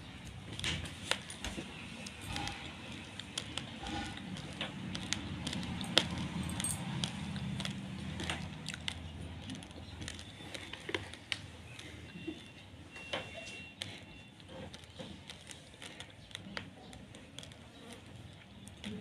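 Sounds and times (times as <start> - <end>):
rice grains clicking and rattling: 0.2 - 12.2.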